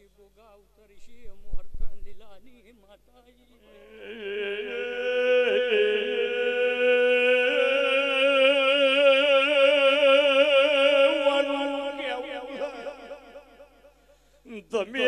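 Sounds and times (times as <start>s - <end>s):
voice chanting a long note: 3.6s - 14.0s.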